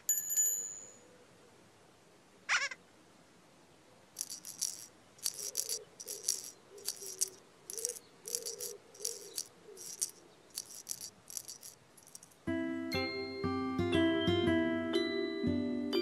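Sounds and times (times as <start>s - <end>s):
shaker rattling: 4.2s - 12.4s.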